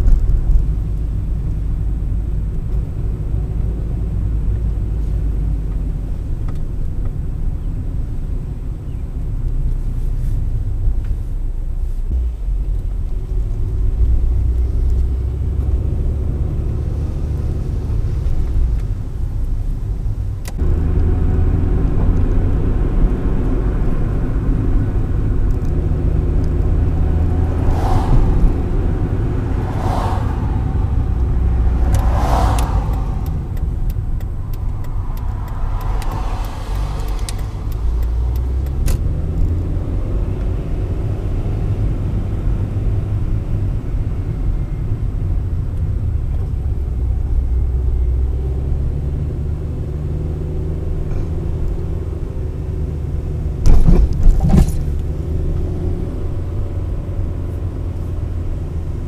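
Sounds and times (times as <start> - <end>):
car engine and road noise: 0.0 - 59.0
brief whooshes: 27.3 - 39.3.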